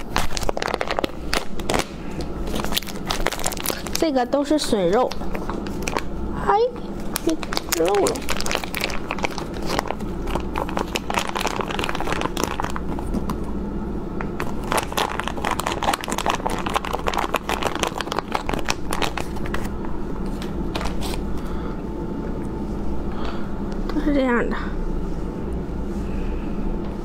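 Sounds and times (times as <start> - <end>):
plastic packet crinkling: 0.0 - 4.2, 4.9 - 6.1, 7.1 - 13.1, 14.4 - 19.7.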